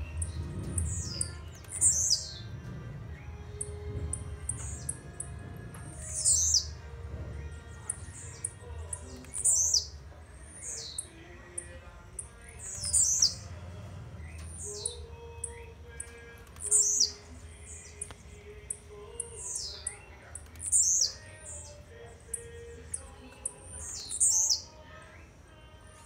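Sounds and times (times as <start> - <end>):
bird song with falling high note: 0.0 - 6.9.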